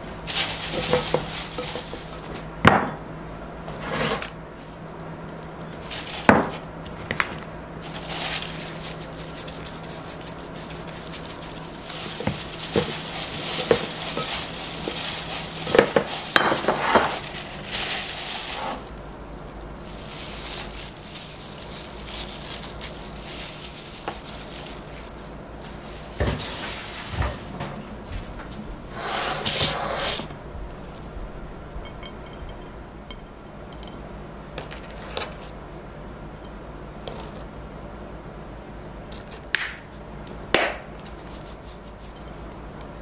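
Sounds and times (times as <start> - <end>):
gloved hand tossing vegetables: 0.0 - 2.3, 5.7 - 6.7, 7.8 - 27.6.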